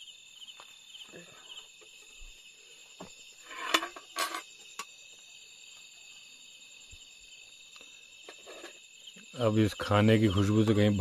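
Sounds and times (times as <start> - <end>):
crickets chirping: 0.0 - 11.0
spoon scraping a metal pot: 3.4 - 4.5, 8.3 - 8.8.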